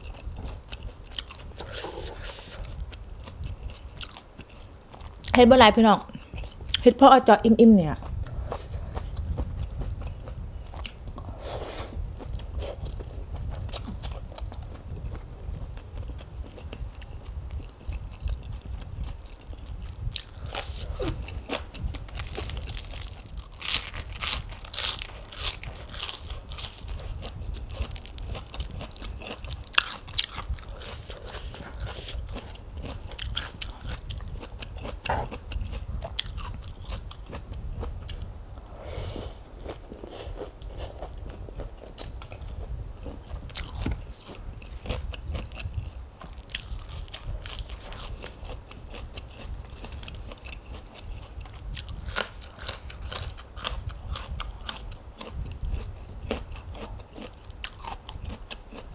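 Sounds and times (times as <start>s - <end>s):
person chewing noodles: 0.0s - 5.4s, 6.1s - 6.8s, 8.0s - 58.9s
lettuce crunching: 20.1s - 34.2s.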